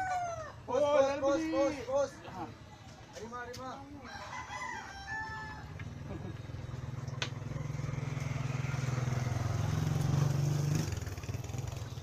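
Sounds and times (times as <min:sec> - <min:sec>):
motorcycle engine running: 0:05.9 - 0:12.0.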